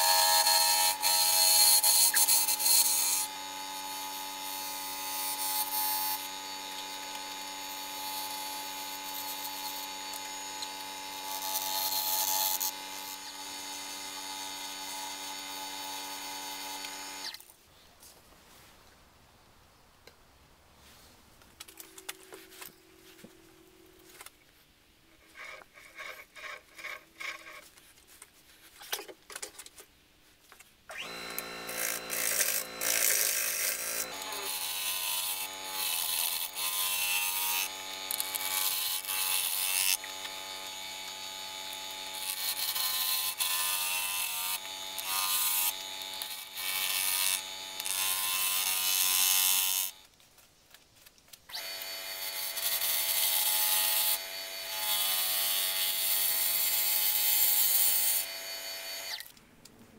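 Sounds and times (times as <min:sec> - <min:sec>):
hand scraping and rubbing: 0:20.8 - 0:30.6
wood lathe motor hum: 0:30.9 - 0:49.9.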